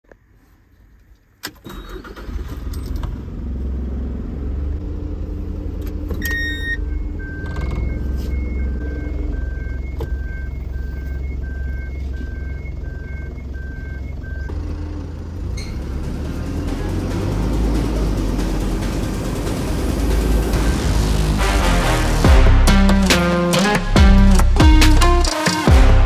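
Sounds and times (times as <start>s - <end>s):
truck engine starting and idling: 1.4s - 26.0s
two-pitch reversing beeper: 6.2s - 14.5s.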